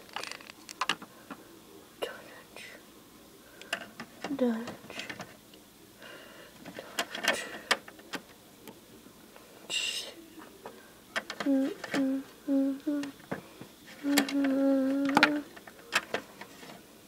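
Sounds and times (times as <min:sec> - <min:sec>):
plastic toys clicking: 0:00.0 - 0:01.1, 0:06.6 - 0:08.2, 0:11.2 - 0:12.1, 0:14.0 - 0:16.5
child humming notes: 0:11.4 - 0:13.1, 0:14.0 - 0:15.5.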